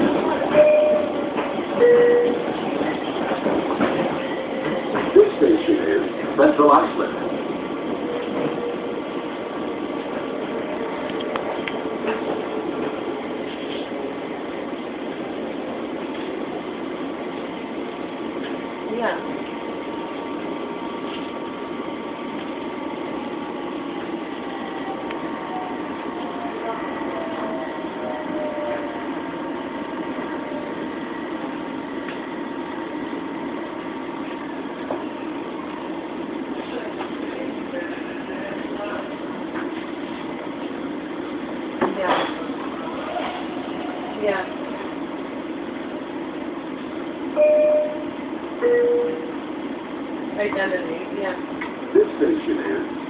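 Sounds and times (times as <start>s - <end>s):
train rumble and hiss: 0.0s - 53.0s
faint held tone: 47.4s - 49.4s.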